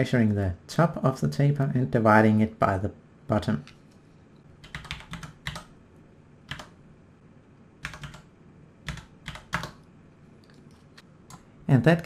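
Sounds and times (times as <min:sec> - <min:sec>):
keyboard keystrokes clicking: 0:06.5 - 0:06.8, 0:07.8 - 0:08.3.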